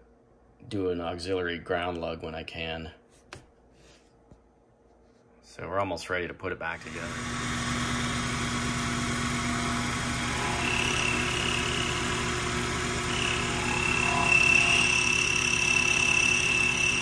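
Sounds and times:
high metal cutting whine: 0:06.8 - 0:17.0
mini mill running: 0:06.8 - 0:17.0.

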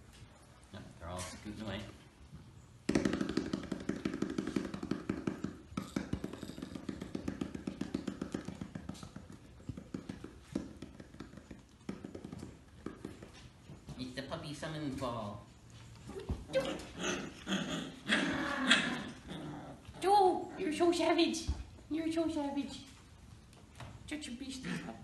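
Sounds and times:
hands drumming on rubber ball: 0:02.8 - 0:13.5.

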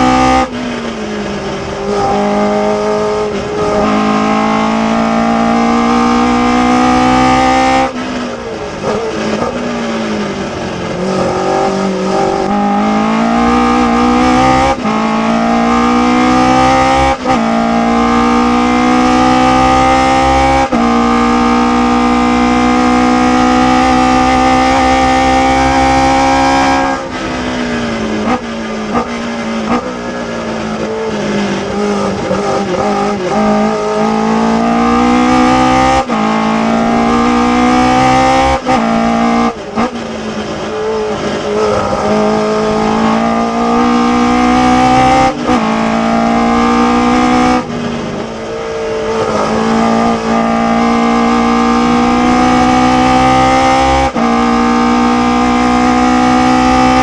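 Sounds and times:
engine blips on downshifts: 0:00.0 - 0:57.0
race car engine at full throttle: 0:00.0 - 0:57.0.

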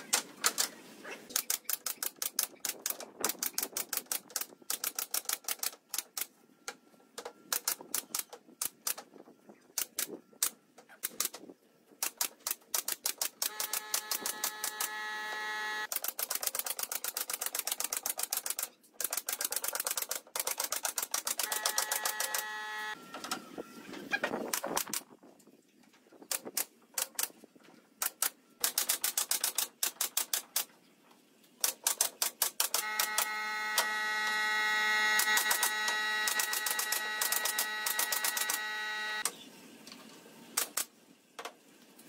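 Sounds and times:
steady humming tone: 0:21.5 - 0:24.0.

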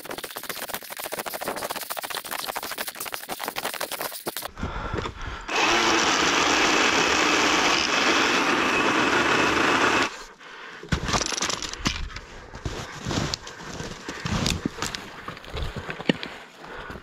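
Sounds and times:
pole saw cutting branch: 0:05.5 - 0:10.2.

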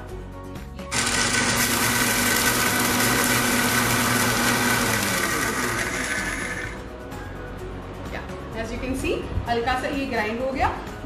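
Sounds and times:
mixer grinder motor whine: 0:00.9 - 0:06.8.

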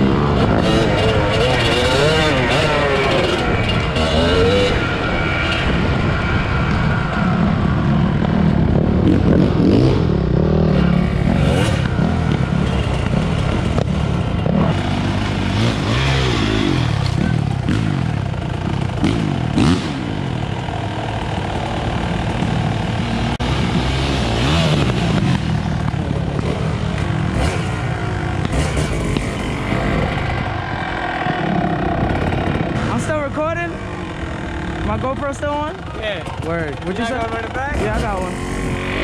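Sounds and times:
dirt bike engines revving: 0:00.0 - 0:39.0.

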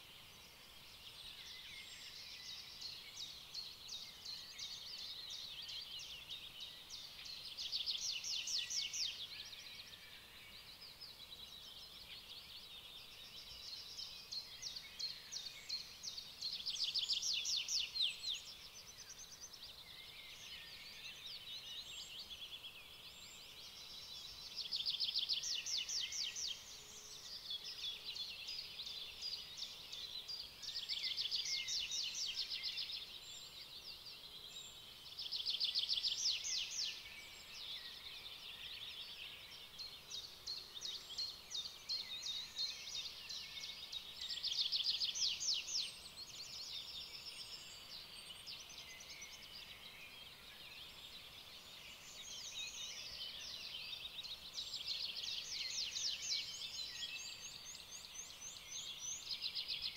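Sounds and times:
quiet bird chirps: 0:00.0 - 0:59.9.

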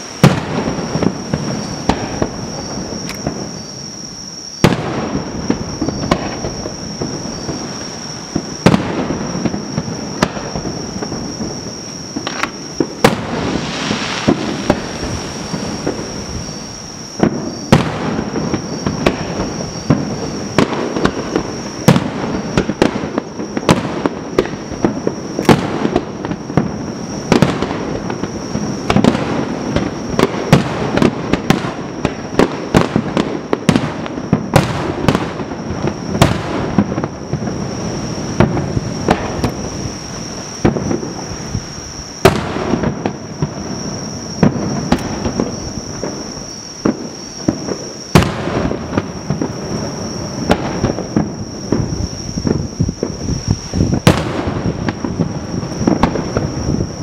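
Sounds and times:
firework shells bursting: 0:00.0 - 0:03.7, 0:04.6 - 0:26.6
rumble of firework bursts: 0:00.0 - 0:57.0.

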